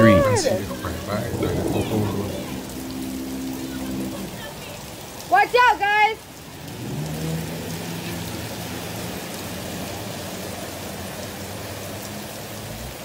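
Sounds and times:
heavy rain on a flooded street: 0.0 - 13.0.

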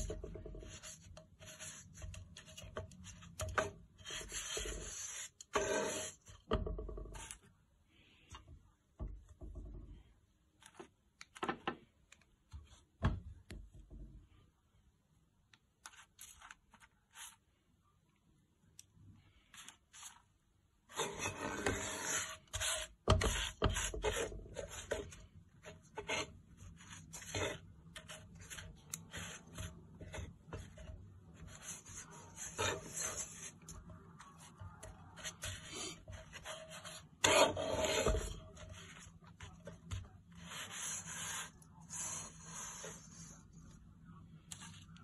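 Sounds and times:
wooden spatula scraping a pan: 0.0 - 7.4, 20.9 - 43.5.

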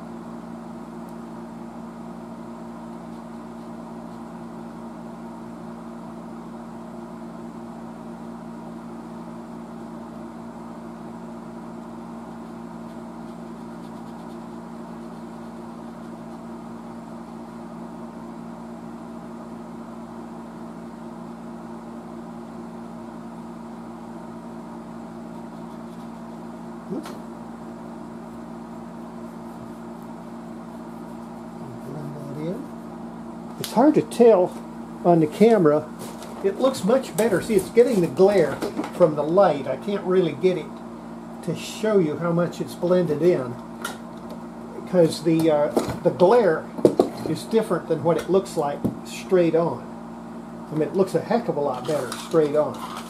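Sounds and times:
low motor hum: 24.1 - 41.5.

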